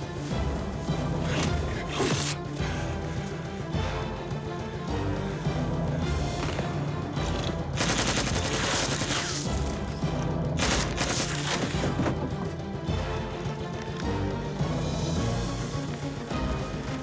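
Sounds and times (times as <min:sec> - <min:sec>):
film music: 0:00.0 - 0:17.0
automatic gunfire bursts: 0:07.8 - 0:09.5, 0:10.6 - 0:11.6.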